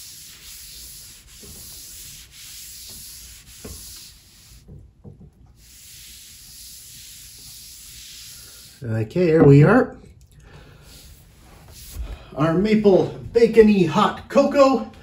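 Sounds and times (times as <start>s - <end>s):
cloth rag rubbing on wood: 0.0s - 4.7s, 5.5s - 8.8s, 10.9s - 12.2s.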